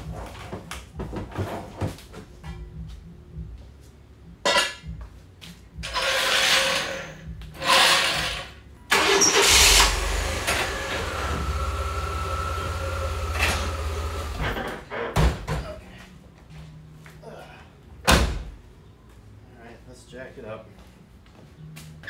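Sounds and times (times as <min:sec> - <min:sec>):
truck engine cranking and rumbling: 0:08.9 - 0:14.4.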